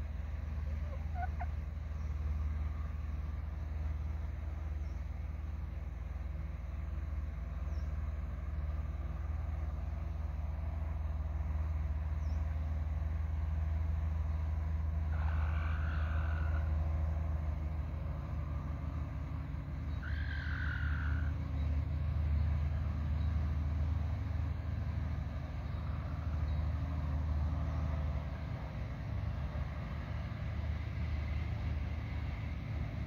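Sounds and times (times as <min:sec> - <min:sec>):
steady low rumble: 0:00.0 - 0:20.1.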